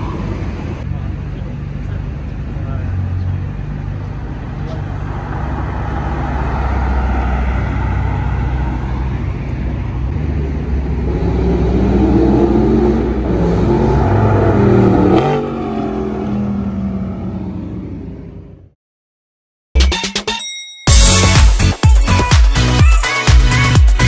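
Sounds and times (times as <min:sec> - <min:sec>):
low rumble of engines: 0:00.0 - 0:18.8
sports car engine revving past: 0:10.1 - 0:18.4.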